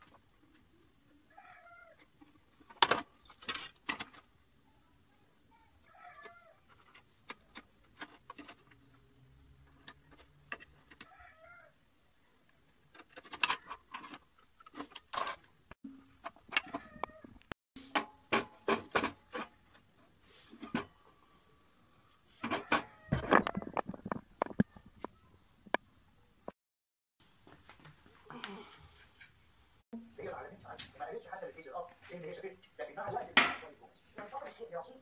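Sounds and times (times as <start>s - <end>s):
faint animal calls: 1.2s - 2.1s, 5.5s - 6.8s, 11.0s - 11.8s.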